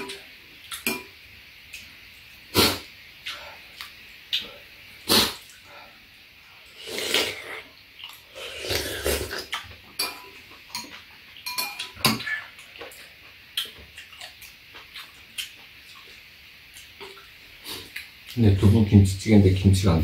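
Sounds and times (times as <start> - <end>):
utensils clinking on ceramic bowls: 10.0 - 12.4.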